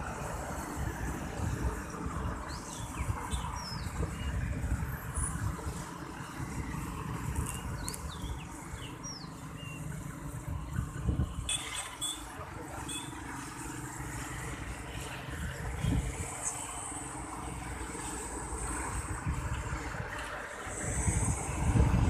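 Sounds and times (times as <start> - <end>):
motorcycles passing: 0.0 - 22.0
birds chirping: 1.9 - 5.8, 7.4 - 13.2.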